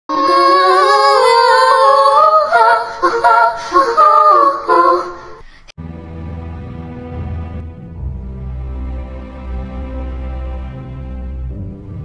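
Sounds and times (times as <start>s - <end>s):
woman singing: 0.1s - 5.5s.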